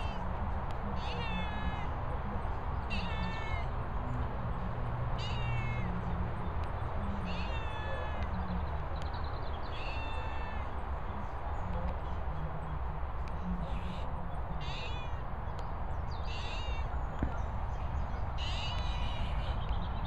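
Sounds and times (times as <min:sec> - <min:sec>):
cat meowing: 0:01.0 - 0:01.9, 0:02.9 - 0:03.7, 0:05.2 - 0:06.0, 0:07.2 - 0:08.3, 0:09.7 - 0:10.7, 0:14.6 - 0:15.2, 0:16.3 - 0:16.9.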